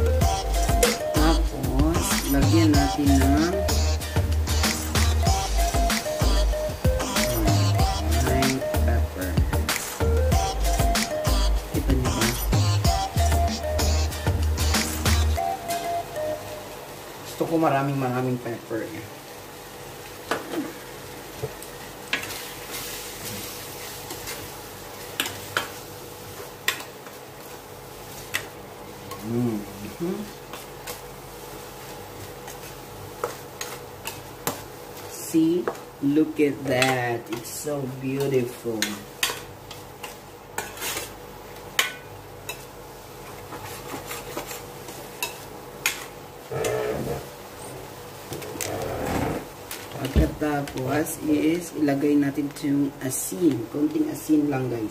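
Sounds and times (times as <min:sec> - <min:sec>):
meat sizzling in a pan: 0:16.4 - 0:36.2.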